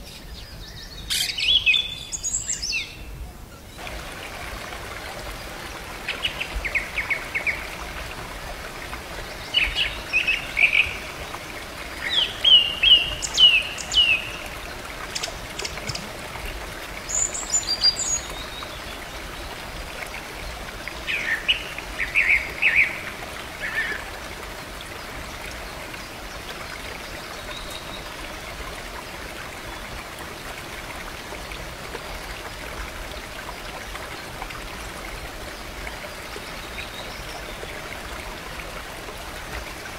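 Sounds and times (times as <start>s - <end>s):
small waterfall running into pool: 3.8s - 39.9s.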